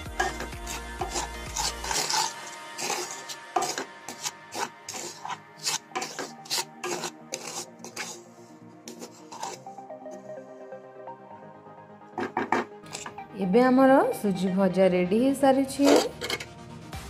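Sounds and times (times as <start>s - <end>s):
wooden spatula scraping metal pan: 0.0s - 9.8s, 12.2s - 13.2s, 15.8s - 16.5s.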